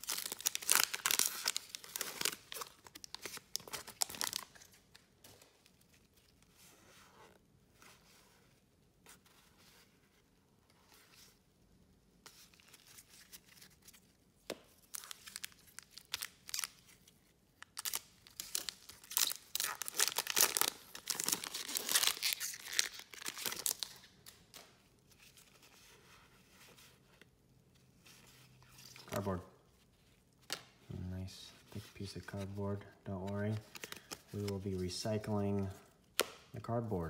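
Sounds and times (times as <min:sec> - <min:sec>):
foil wrapper tearing and crinkling: 0:00.0 - 0:04.5, 0:17.7 - 0:24.1.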